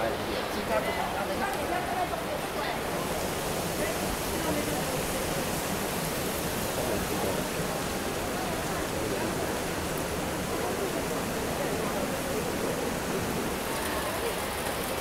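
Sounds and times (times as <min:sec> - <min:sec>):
river rushing: 0:00.0 - 0:15.0
small water cascade pouring: 0:00.0 - 0:15.0.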